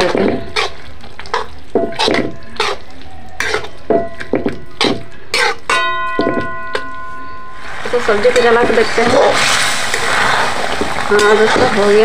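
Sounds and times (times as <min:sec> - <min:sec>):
spatula scraping a metal pan: 0:00.0 - 0:05.9.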